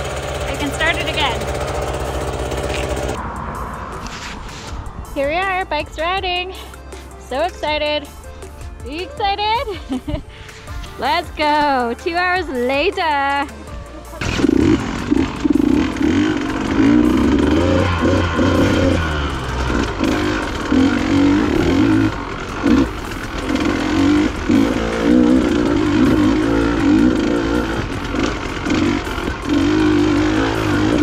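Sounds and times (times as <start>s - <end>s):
dirt bike engine revving: 0.0s - 3.2s, 14.1s - 31.0s.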